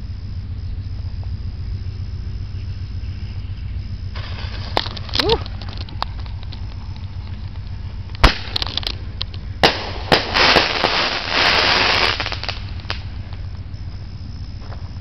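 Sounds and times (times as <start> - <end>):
firework crackling: 4.0 - 13.8
firework bangs: 4.1 - 7.0, 8.0 - 13.5
firework pop: 4.2 - 7.1, 8.1 - 10.7.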